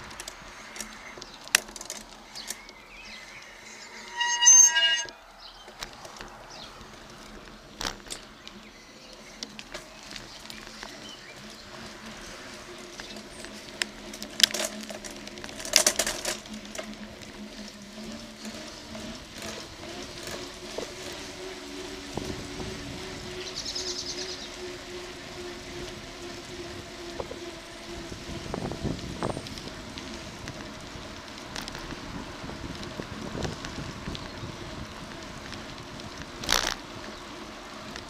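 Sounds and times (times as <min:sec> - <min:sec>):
bicycle tyres and frame rattling: 0:00.0 - 0:38.0
bicycle knocking over bumps: 0:09.2 - 0:22.4, 0:28.5 - 0:38.0.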